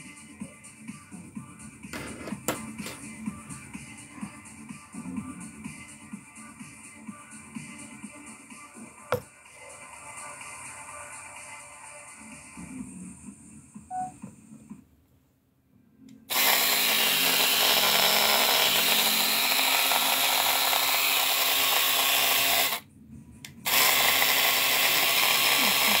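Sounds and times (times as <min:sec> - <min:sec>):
electric shaver running: 0:16.3 - 0:22.8, 0:23.6 - 0:26.0.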